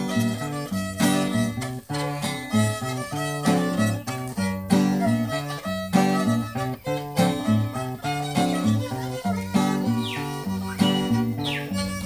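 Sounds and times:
acoustic guitar strumming: 0:00.0 - 0:12.0
violin melody: 0:00.0 - 0:12.0.

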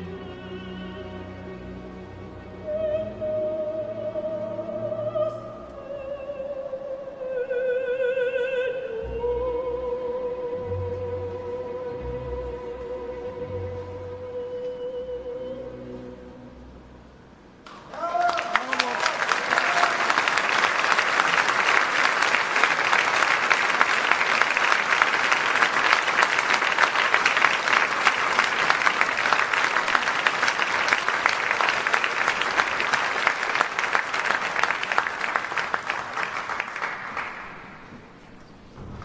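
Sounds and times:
audience applauding: 0:17.6 - 0:38.1.

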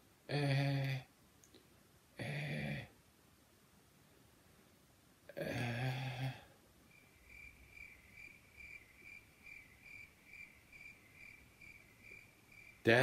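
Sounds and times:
faint high chirp: 0:06.9 - 0:13.0.

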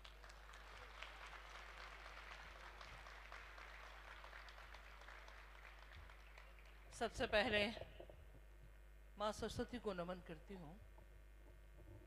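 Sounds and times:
faint distant applause: 0:00.0 - 0:07.0
low electrical hum: 0:00.0 - 0:12.0.

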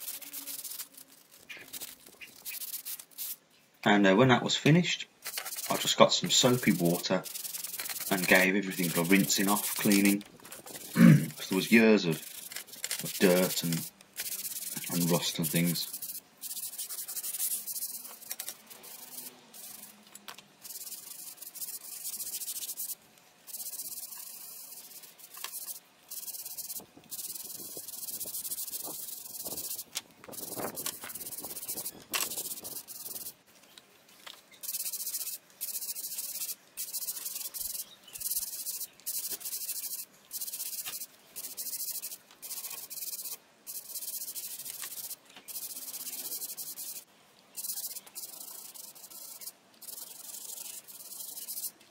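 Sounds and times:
scrub brush scrubbing wet metal: 0:05.3 - 0:20.0.

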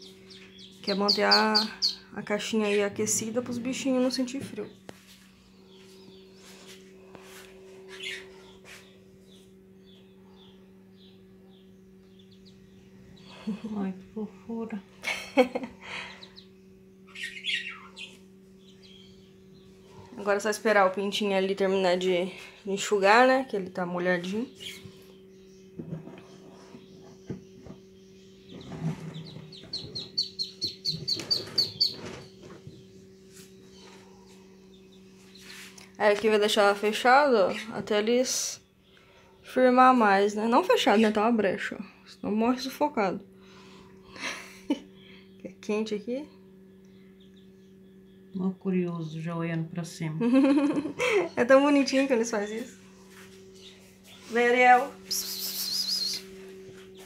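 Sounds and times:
ducklings peeping: 0:00.0 - 0:03.6, 0:07.7 - 0:14.1, 0:15.8 - 0:21.0, 0:24.2 - 0:39.4, 0:46.8 - 0:48.4, 0:53.5 - 0:57.0
steady low hum: 0:00.0 - 0:57.0.

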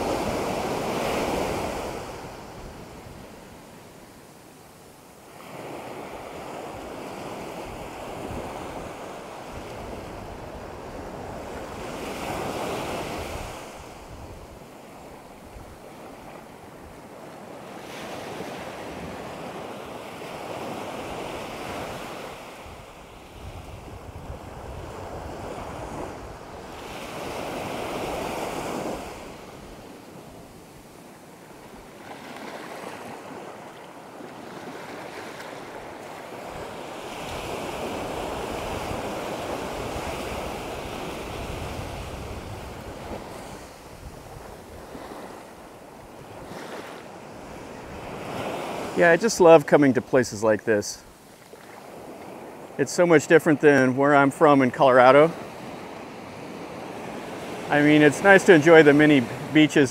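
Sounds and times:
waves breaking on shore: 0:00.0 - 0:59.9
wind rumbling on microphone: 0:07.6 - 0:15.9, 0:22.6 - 0:29.9, 0:36.5 - 0:45.5.

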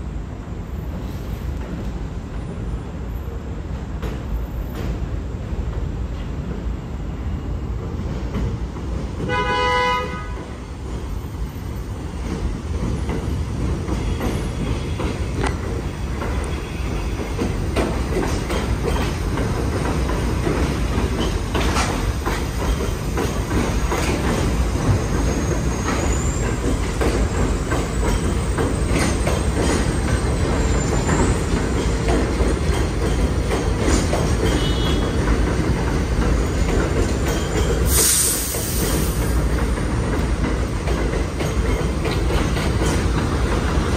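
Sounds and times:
train cars rumbling past: 0:00.0 - 0:43.9
train horn toot: 0:09.3 - 0:10.5, 0:34.5 - 0:35.2
wheels clicking over rail joints: 0:12.1 - 0:43.9
high wheel squeal: 0:24.6 - 0:31.9.

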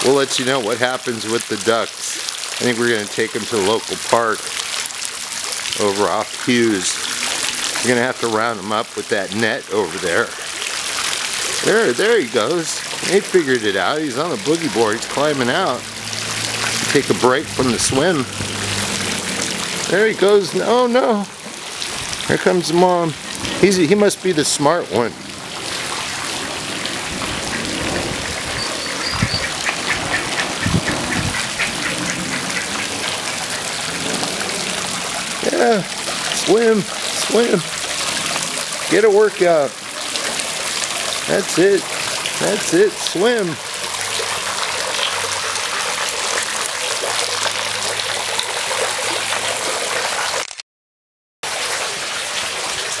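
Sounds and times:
trickling water: 0:00.0 - 0:50.6, 0:51.4 - 0:53.0
duck calling: 0:28.5 - 0:33.8.

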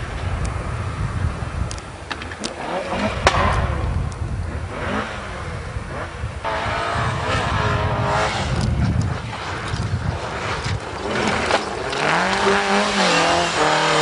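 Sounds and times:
sharp crack: 0:01.7 - 0:04.2
rally car engine revving: 0:02.4 - 0:14.0.

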